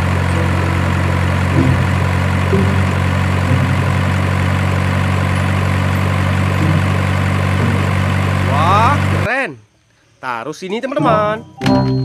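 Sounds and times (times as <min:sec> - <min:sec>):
diesel truck engine idling: 0:00.0 - 0:09.3.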